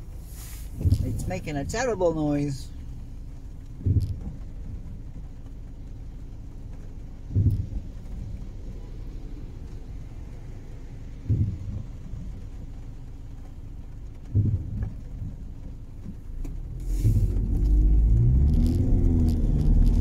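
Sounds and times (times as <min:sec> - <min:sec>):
car engine idling: 0:00.0 - 0:20.0
rain: 0:00.0 - 0:20.0
rear wiper groaning: 0:00.0 - 0:20.0.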